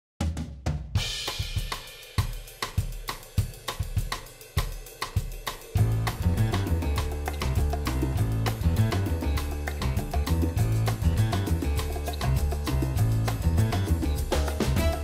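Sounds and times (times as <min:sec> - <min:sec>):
drum and hi-hat beat: 0:00.2 - 0:15.0
bass line: 0:05.8 - 0:15.0.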